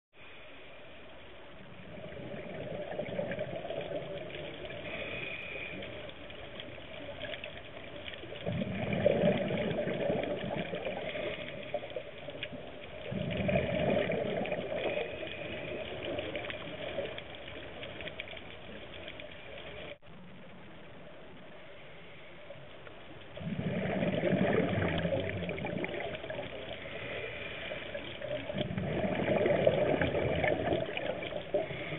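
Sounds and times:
bubbling diver exhalations: 8.4s - 12.0s, 13.0s - 17.1s, 23.4s - 31.9s.

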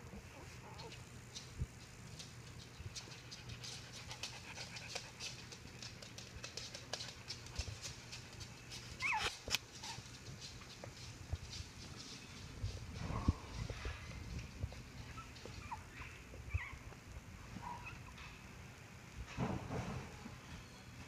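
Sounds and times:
puppies scratching and rustling: 0.0s - 18.6s
puppy squeak: 9.0s - 10.0s.

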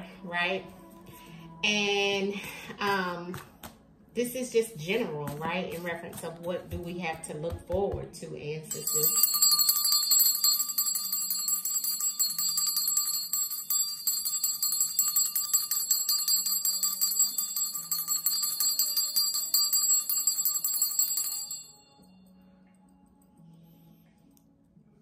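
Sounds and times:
hand bell ringing: 8.7s - 22.2s.

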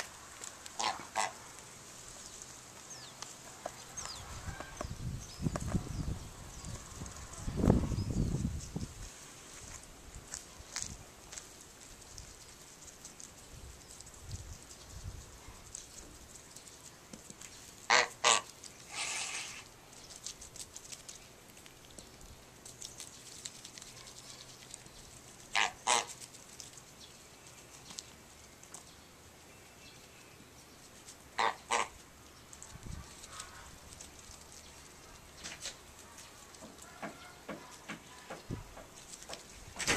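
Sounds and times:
goose honking: 0.8s - 1.4s, 17.9s - 19.6s, 25.5s - 26.2s, 31.4s - 32.0s.

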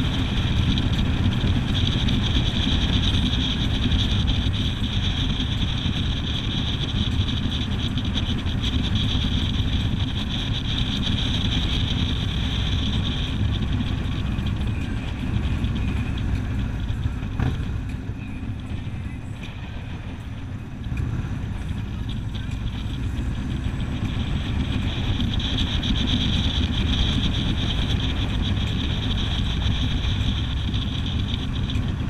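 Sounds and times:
vehicle road noise: 0.0s - 32.0s.

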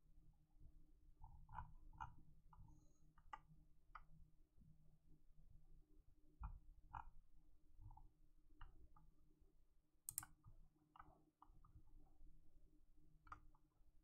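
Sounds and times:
small clicks and taps: 1.2s - 4.2s, 6.4s - 9.2s, 10.1s - 12.2s, 13.2s - 13.8s.

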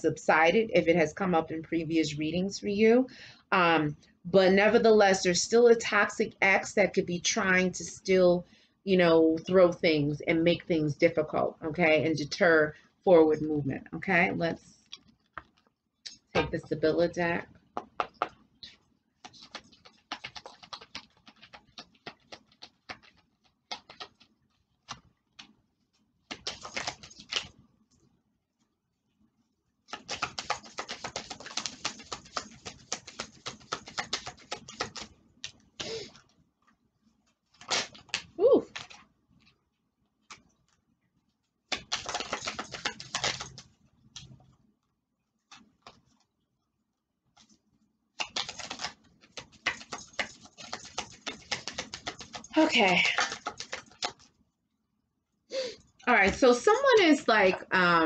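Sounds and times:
cards being shuffled: 17.8s - 27.6s, 29.9s - 36.4s, 37.4s - 39.6s, 41.7s - 44.5s, 45.4s - 46.3s, 47.4s - 47.6s, 48.2s - 54.3s.

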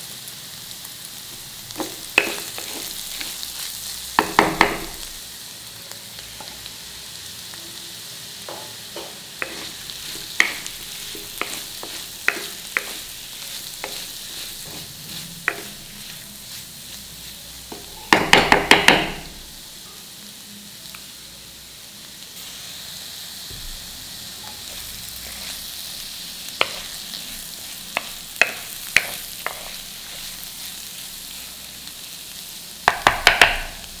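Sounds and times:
food sizzling in a pan: 0.0s - 34.0s
spatula scraping a pan: 1.8s - 3.8s, 9.0s - 18.2s, 24.6s - 31.5s.

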